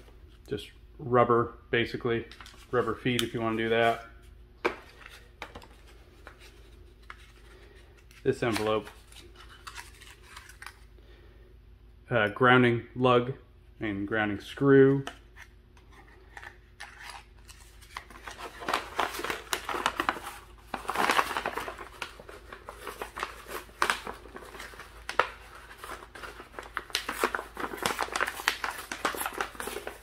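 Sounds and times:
paper packaging rustling: 0:04.6 - 0:10.9, 0:15.9 - 0:30.0.

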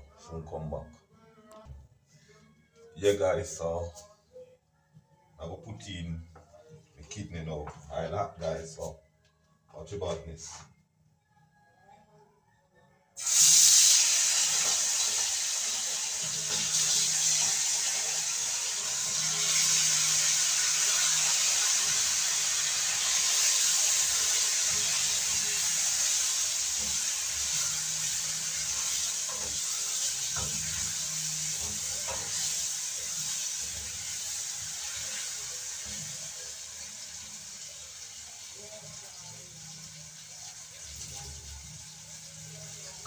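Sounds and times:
meat sizzling in hot oil: 0:13.2 - 0:43.0.

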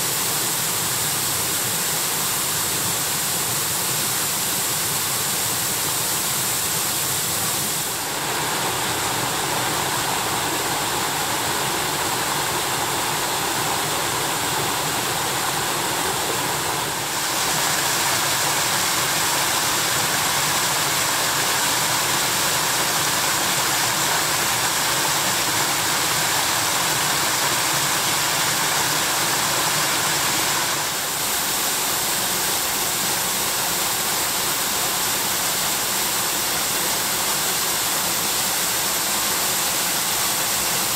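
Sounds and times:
water falling over rocks: 0:07.7 - 0:39.1.

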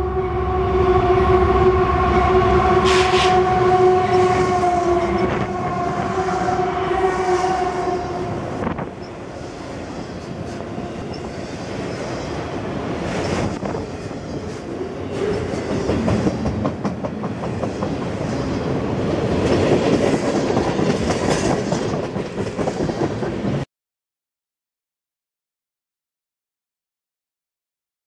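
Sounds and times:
freight train rolling past: 0:00.0 - 0:23.6
wheels clickety-clack: 0:15.2 - 0:18.6, 0:19.3 - 0:23.6.

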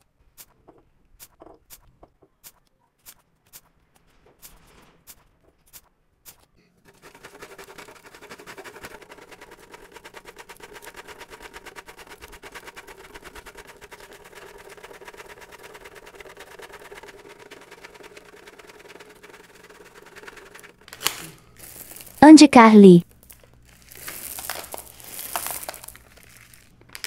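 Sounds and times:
chocolate scraping on metal grater: 0:06.9 - 0:21.1.

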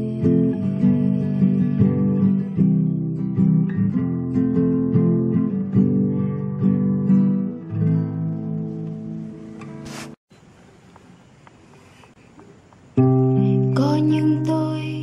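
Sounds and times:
acoustic guitar strummed and picked: 0:00.0 - 0:10.2.

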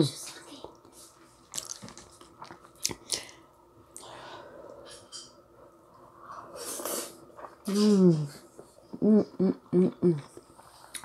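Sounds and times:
chewing and mouth smacks: 0:01.5 - 0:03.4.

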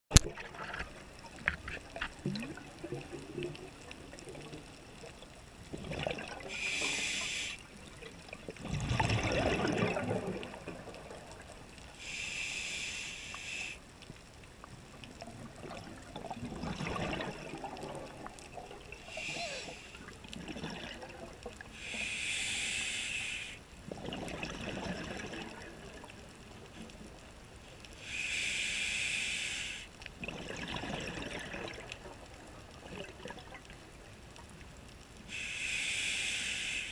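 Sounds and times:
exhaled bubbles gurgling: 0:00.1 - 0:11.8, 0:14.9 - 0:22.8, 0:23.8 - 0:27.0, 0:30.2 - 0:34.2
regulator hiss on inhale: 0:06.5 - 0:07.8, 0:11.9 - 0:13.9, 0:19.0 - 0:20.2, 0:21.6 - 0:23.7, 0:27.7 - 0:30.0, 0:35.2 - 0:36.9.

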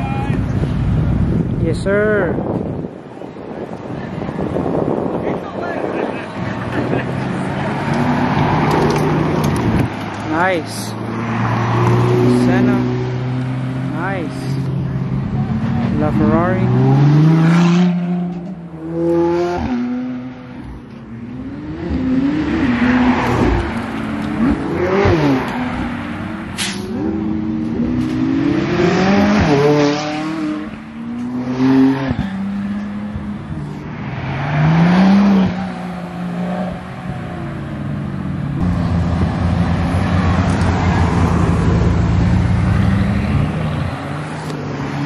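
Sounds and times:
sports cars accelerating past: 0:06.3 - 0:14.0, 0:14.6 - 0:45.0
sharp crack: 0:26.6 - 0:26.9.

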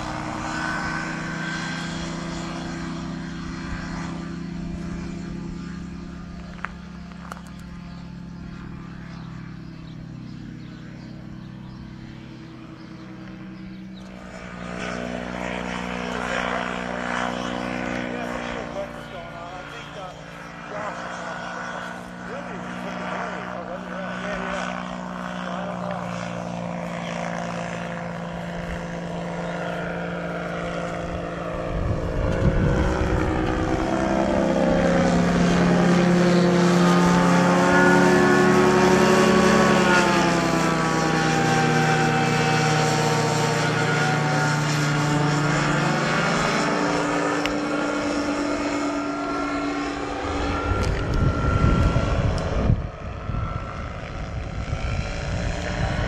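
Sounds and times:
light plane engine droning past: 0:00.0 - 0:56.0
wind rumble on microphone: 0:30.5 - 0:36.1, 0:50.3 - 0:56.0.

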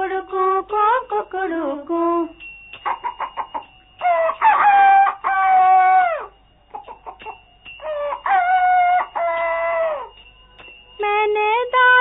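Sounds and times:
rooster crowing: 0:02.8 - 0:10.2
rooster clucking: 0:02.9 - 0:06.0.

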